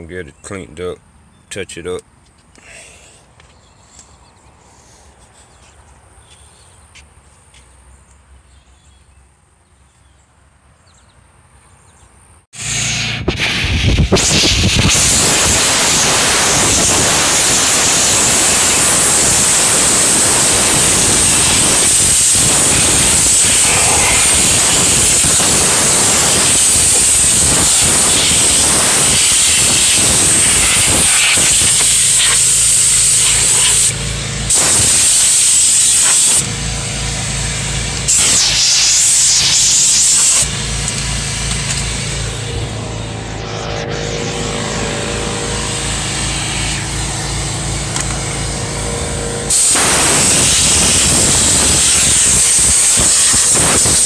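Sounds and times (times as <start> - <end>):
compressed air hissing: 12.6 - 42.5, 49.5 - 54.0.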